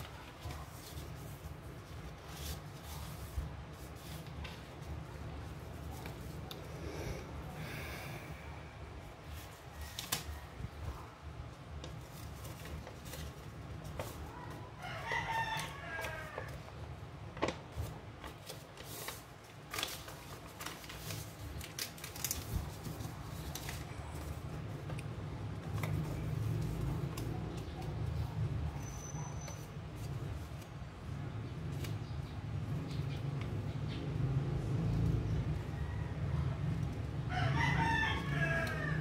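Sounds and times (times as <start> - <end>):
paper crackling while folded: 0.0 - 7.8, 8.9 - 33.7
rooster crowing: 14.8 - 16.6, 35.6 - 39.0.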